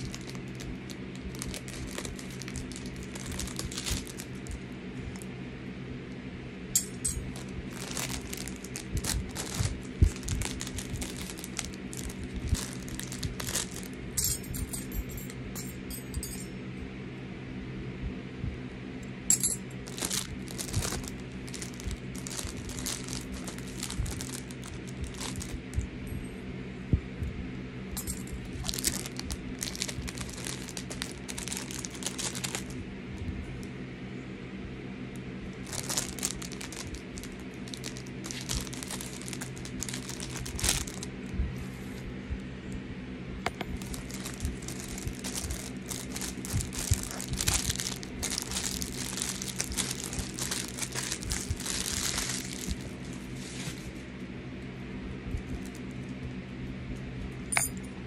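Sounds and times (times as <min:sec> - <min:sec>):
plastic packaging crinkling: 0:00.0 - 0:05.3, 0:06.8 - 0:14.0, 0:19.8 - 0:25.8, 0:28.0 - 0:32.8, 0:35.6 - 0:41.1, 0:43.6 - 0:53.8
steady low hum: 0:00.0 - 0:58.0.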